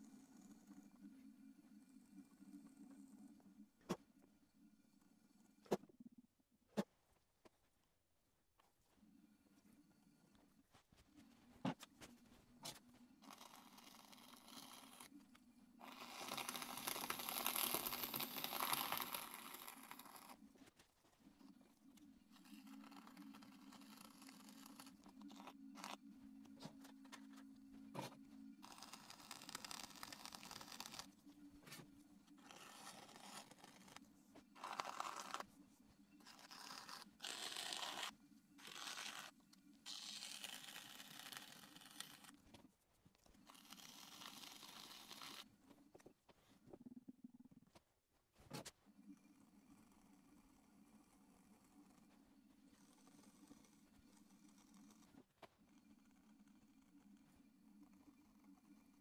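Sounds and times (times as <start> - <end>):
low steady hum: 0.0 - 59.0
tool scraping clay: 10.8 - 21.6, 22.2 - 46.7.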